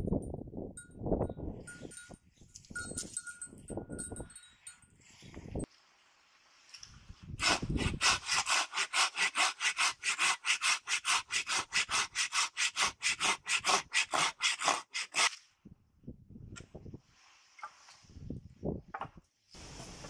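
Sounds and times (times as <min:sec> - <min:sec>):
hand saw cutting wood: 0:07.4 - 0:15.4.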